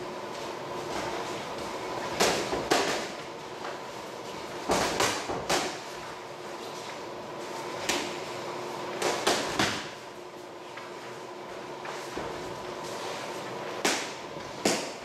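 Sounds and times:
boxing gloves smacking: 13.8s - 15.0s.

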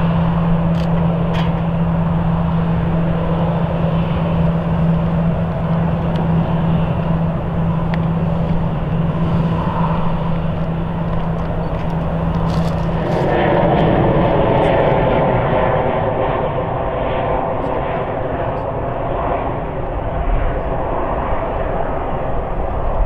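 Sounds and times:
jet engines idling: 0.0s - 23.0s.

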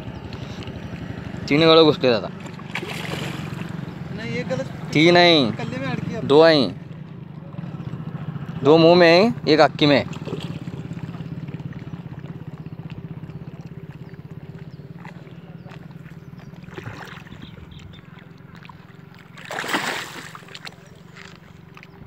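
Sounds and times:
engine drone: 0.0s - 22.0s
fish splashing in water: 2.3s - 5.7s, 10.0s - 22.0s.

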